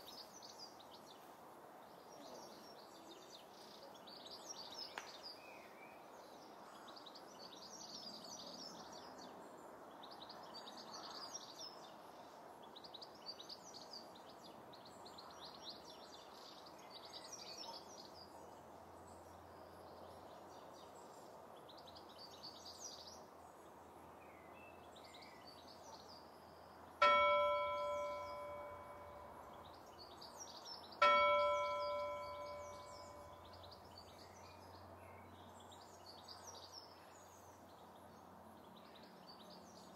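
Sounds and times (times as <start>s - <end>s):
bell ringing: 27.0s - 29.6s, 31.0s - 33.4s
birds chirping: 27.0s - 30.2s, 31.0s - 33.8s.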